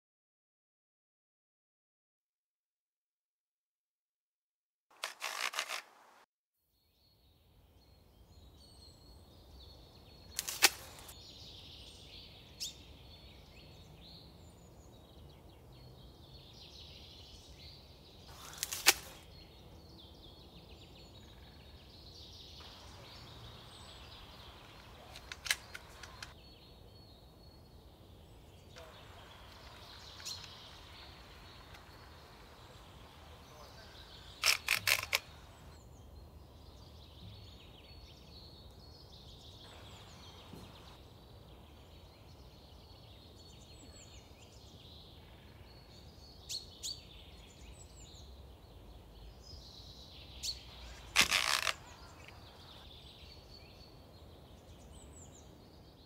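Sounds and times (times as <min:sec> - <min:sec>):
pruner blade snapping branches: 0:05.0 - 0:06.0, 0:10.3 - 0:11.1, 0:18.3 - 0:19.2, 0:24.8 - 0:26.3, 0:34.4 - 0:35.5, 0:50.9 - 0:52.4
birds chirping: 0:07.0 - 0:56.0
pruner head clicking: 0:25.0 - 0:26.3.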